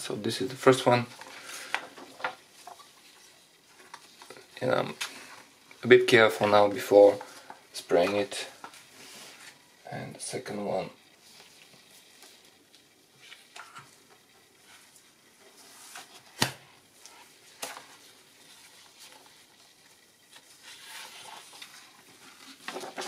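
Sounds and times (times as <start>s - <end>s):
paper rustling and sliding: 14.6s - 23.0s.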